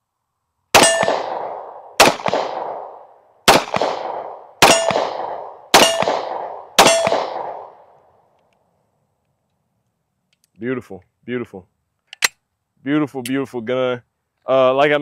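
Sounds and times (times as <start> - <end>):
pistol shots: 0.7 - 7.9.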